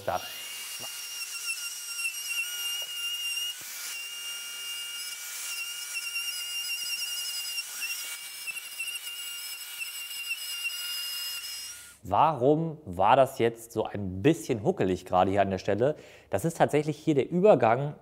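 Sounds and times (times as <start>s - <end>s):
router whining: 0.0s - 12.0s.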